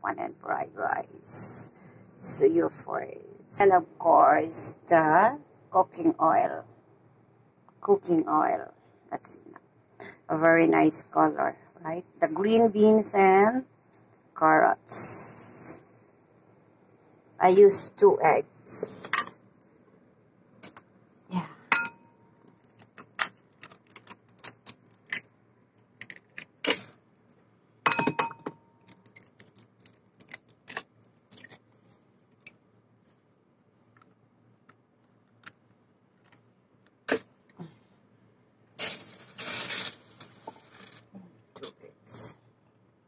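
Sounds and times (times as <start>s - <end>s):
eggshell crackling: 22.4s - 27.0s, 28.9s - 32.6s.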